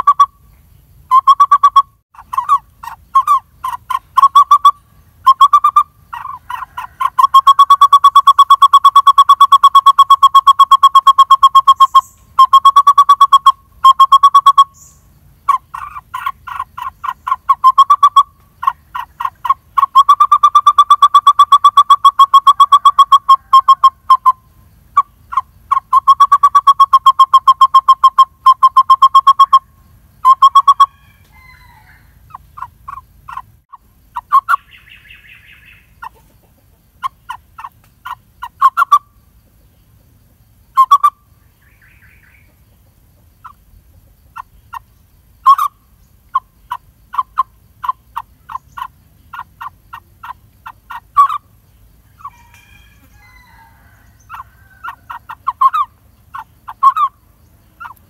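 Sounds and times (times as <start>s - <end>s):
nestling bird calling sharp notes: 1.0s - 36.1s.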